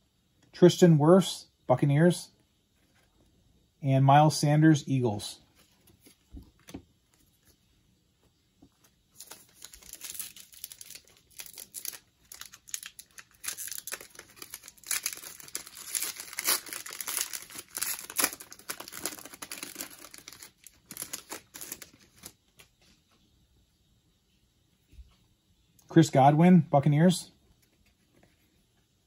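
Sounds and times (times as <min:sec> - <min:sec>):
plastic wrapper crinkling and tearing: 0:09.2 - 0:22.7.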